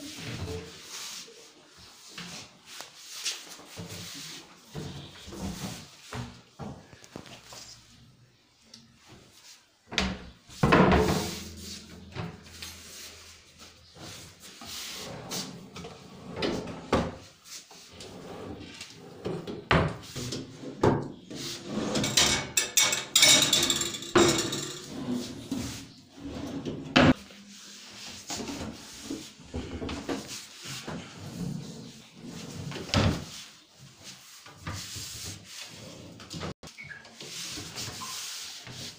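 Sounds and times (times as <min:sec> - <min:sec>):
cabinet drawers sliding: 0:14.0 - 0:17.3, 0:24.2 - 0:27.2.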